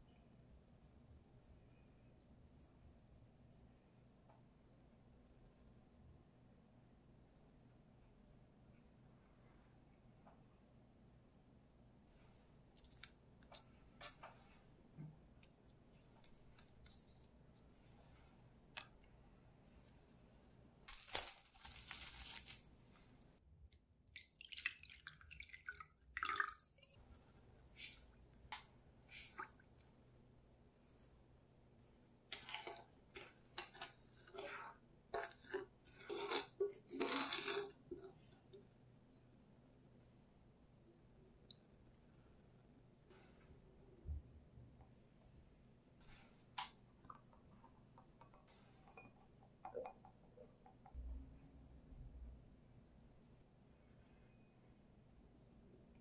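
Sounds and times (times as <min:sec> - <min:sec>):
faint room hiss: 0:00.0 - 0:56.0
soft clicks and paper crackles: 0:12.7 - 0:14.6, 0:15.4 - 0:20.0
wooden spoon scraping a saucepan: 0:32.4 - 0:38.2.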